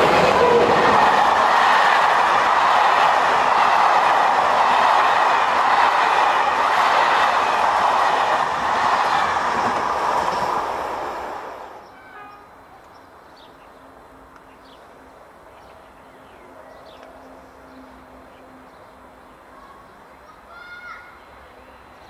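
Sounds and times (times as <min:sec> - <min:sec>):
train rolling past on rails: 0:00.0 - 0:12.4.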